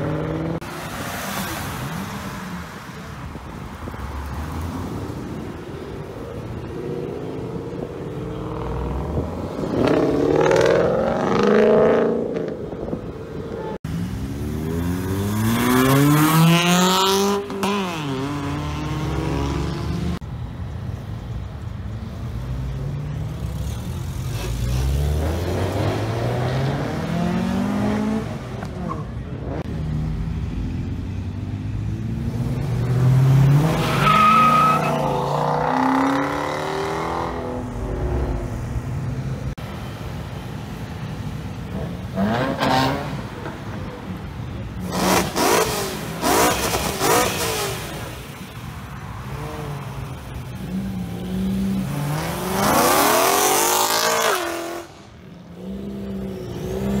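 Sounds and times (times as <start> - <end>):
cars accelerating: 13.8 - 20.2, 22.4 - 40.0, 41.6 - 43.8, 44.8 - 57.0.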